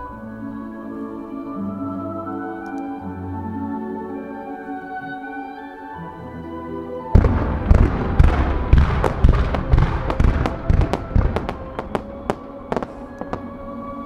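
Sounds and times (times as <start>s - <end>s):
fireworks bangs and pops: 7.2s - 13.5s.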